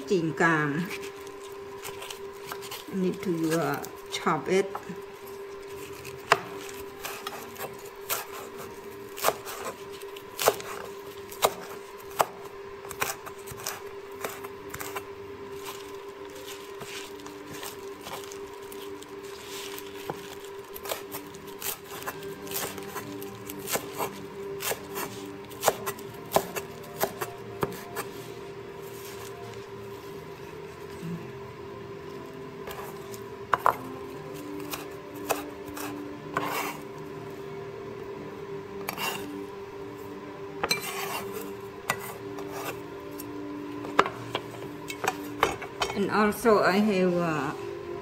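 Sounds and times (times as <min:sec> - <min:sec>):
faint hum: 0:00.0 - 0:48.0
knife chopping on wooden board: 0:05.8 - 0:15.0, 0:20.0 - 0:28.1, 0:32.6 - 0:33.9, 0:34.6 - 0:36.8.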